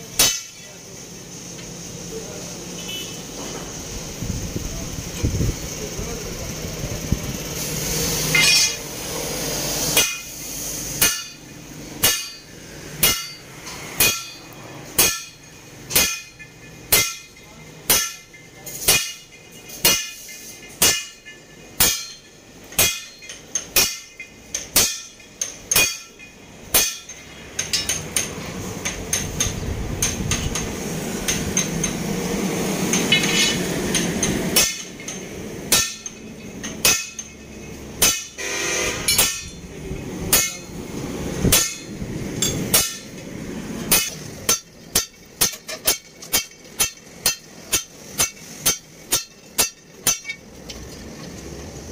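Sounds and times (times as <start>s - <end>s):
sledgehammer clanking on metal: 0.2s - 0.7s, 8.3s - 8.8s, 9.9s - 10.3s, 11.0s - 32.0s, 32.9s - 39.7s, 40.3s - 40.8s, 41.4s - 43.3s, 43.9s - 51.4s.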